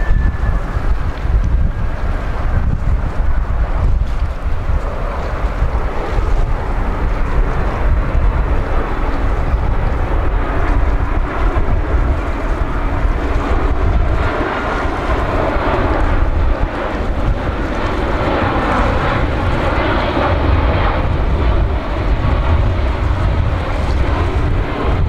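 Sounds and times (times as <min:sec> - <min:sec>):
airliner jet engines: 0:00.0 - 0:25.0
wind buffeting microphone: 0:00.0 - 0:25.0.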